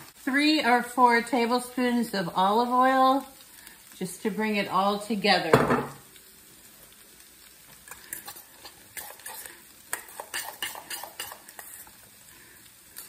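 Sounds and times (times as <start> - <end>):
utensil stirring in a bowl: 7.8 - 12.1.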